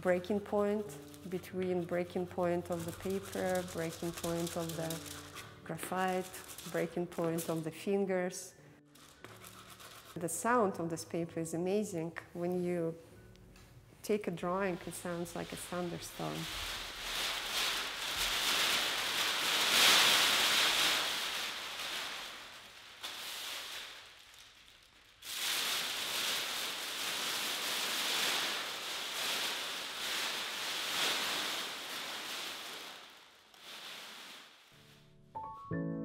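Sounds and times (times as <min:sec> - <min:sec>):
paper rustling and crackling: 0:00.7 - 0:07.8, 0:09.0 - 0:10.2, 0:14.7 - 0:34.9.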